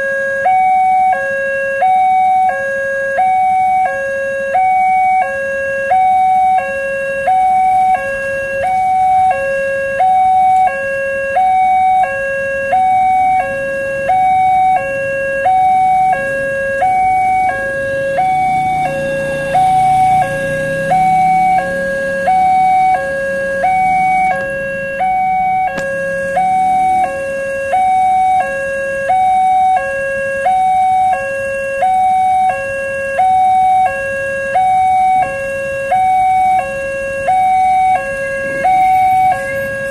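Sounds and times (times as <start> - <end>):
two-tone crossing alarm: 0.0 - 39.9
motorcycle engine rumbling: 13.2 - 28.4.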